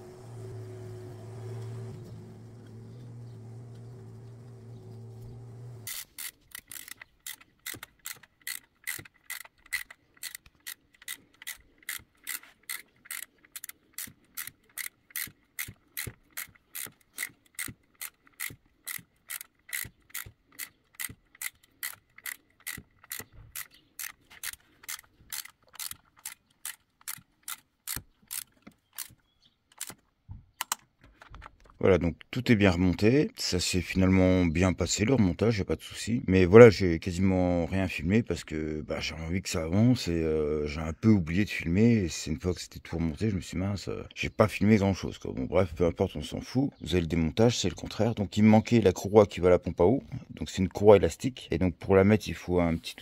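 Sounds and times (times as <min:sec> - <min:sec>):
ratchet wrench clicking: 0:03.1 - 0:30.0.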